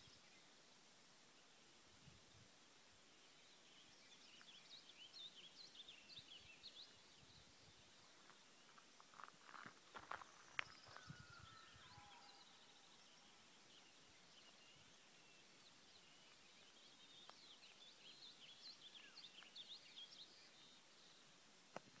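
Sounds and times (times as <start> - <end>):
songbird chirps: 0.0 - 22.0
high whistled bird glides: 10.2 - 17.2.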